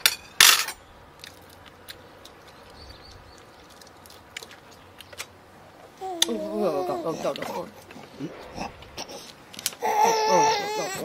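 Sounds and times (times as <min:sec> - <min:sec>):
chewing: 0:01.2 - 0:06.3.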